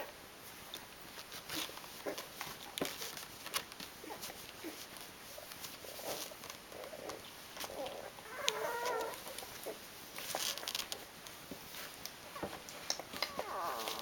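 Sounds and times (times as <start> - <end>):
puppies suckling clicks: 5.5 - 11.4, 12.0 - 14.0
puppy grunting squeaks: 6.0 - 9.8, 13.2 - 14.0
puppy whimpering: 6.0 - 9.8, 13.1 - 14.0.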